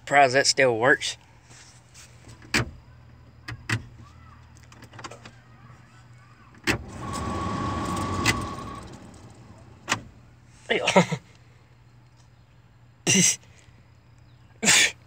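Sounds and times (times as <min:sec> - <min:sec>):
electrical accessory whirring: 0:06.6 - 0:10.5.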